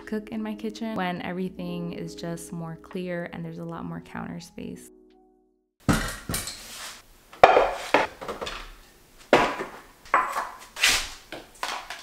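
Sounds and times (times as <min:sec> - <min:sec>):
kitchen items knocking on countertop: 0:07.4 - 0:08.7, 0:09.3 - 0:10.6.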